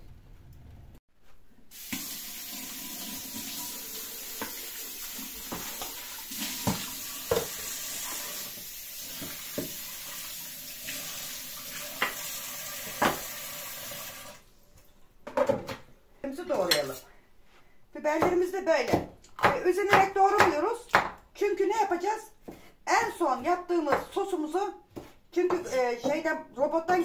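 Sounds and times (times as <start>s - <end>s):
tap water running into sink: 1.7s - 14.4s.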